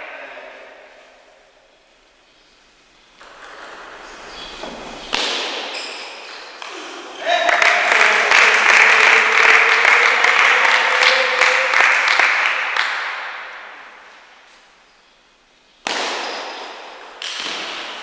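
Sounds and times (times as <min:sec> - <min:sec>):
crowd applause: 0:06.7 - 0:13.9.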